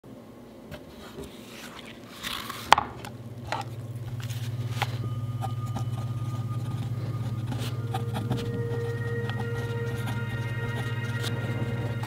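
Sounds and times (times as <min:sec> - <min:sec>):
low steady hum: 0:00.1 - 0:12.0
paper notebook rustling: 0:00.8 - 0:05.0.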